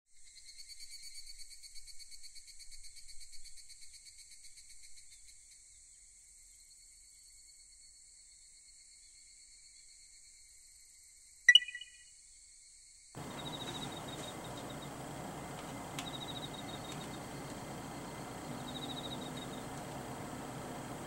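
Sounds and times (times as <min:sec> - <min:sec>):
crickets trilling: 0:13.2 - 0:21.0.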